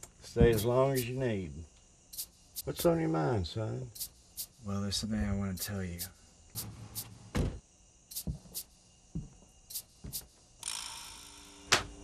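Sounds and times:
hiss: 0.5s - 1.2s, 2.1s - 2.9s, 3.9s - 4.8s, 5.6s - 7.3s, 8.1s - 8.8s, 9.7s - 10.3s
dull thumps: 7.0s - 7.6s.

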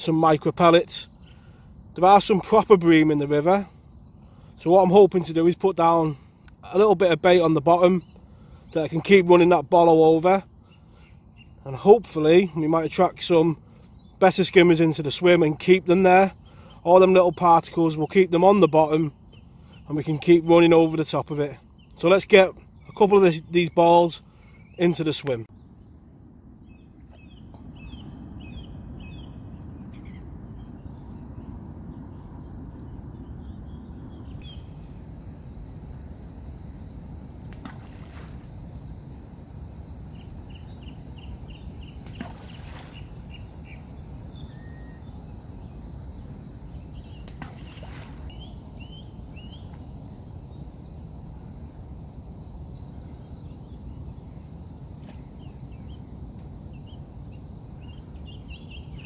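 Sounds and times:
songbirds chirping and singing: 0.0s - 59.0s
low outdoor rumble: 25.4s - 58.9s.

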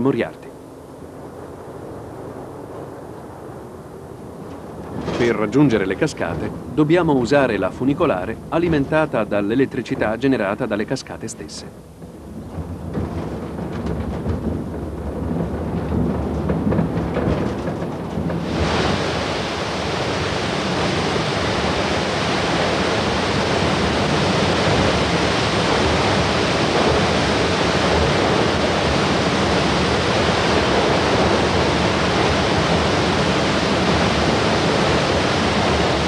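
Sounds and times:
waterfall rushing: 18.4s - 36.0s.

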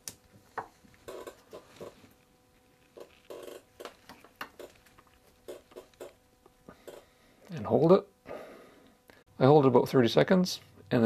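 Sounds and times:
glove squeaking on rubber: 1.0s - 2.2s, 2.8s - 6.2s.

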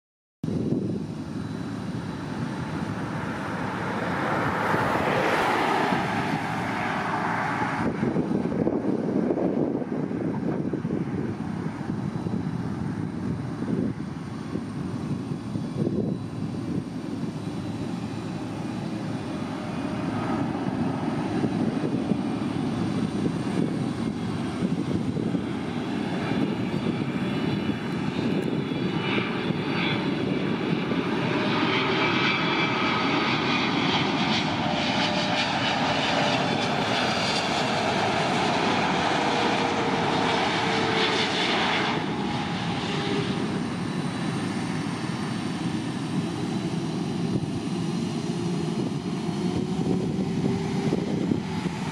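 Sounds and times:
jet engine rumble: 0.4s - 51.9s
jet fan whine: 0.5s - 51.9s.

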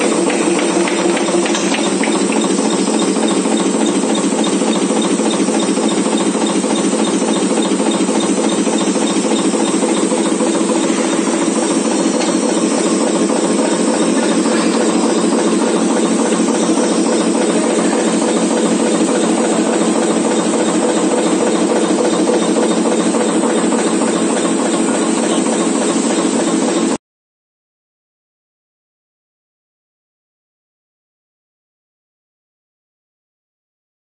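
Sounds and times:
board-chopping machine running: 0.0s - 27.0s.

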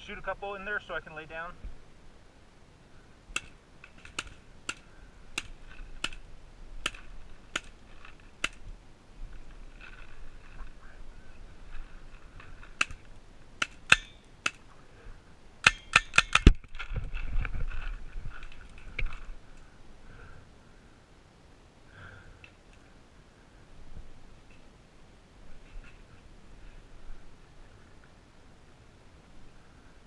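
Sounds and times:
paintball marker shots: 3.4s - 6.2s, 6.8s - 7.8s, 13.6s - 14.6s.

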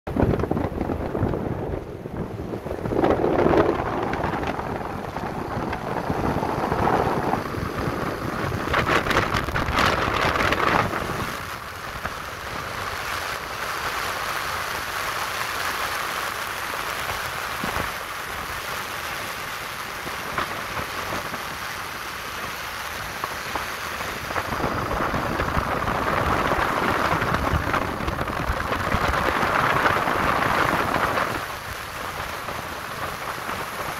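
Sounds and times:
wind buffeting microphone: 0.1s - 14.0s, 16.4s - 33.9s
road noise: 0.1s - 33.9s
motorcycle engine: 3.1s - 13.4s.

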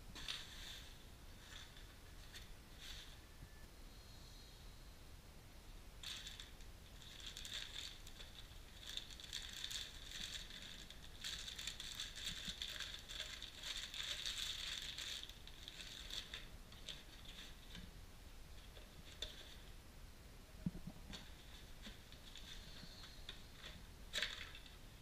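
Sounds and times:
plastic bags crinkling: 6.0s - 17.8s, 20.8s - 25.0s.

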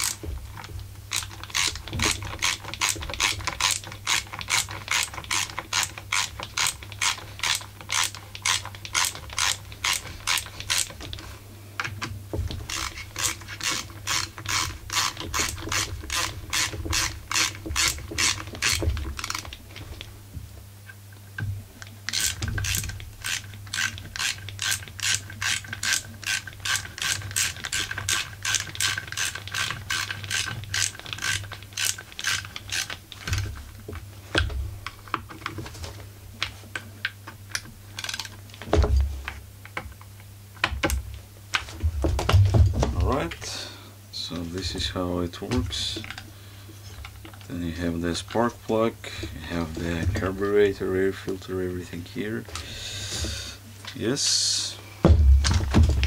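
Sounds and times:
ratcheting screwdriver clicking: 1.1s - 10.9s.

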